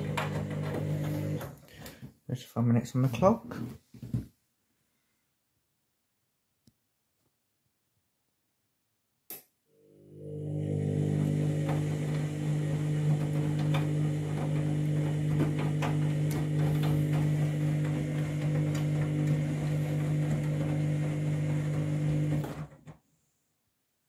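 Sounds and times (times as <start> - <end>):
drain pump humming: 0.0 - 1.5, 9.9 - 22.8.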